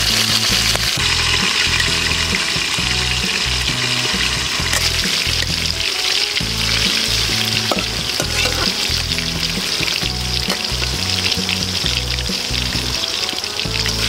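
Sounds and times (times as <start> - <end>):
liver sizzling in hot oil: 0.0 - 14.0
ladle clicking against pan: 4.1 - 5.6, 7.6 - 8.8.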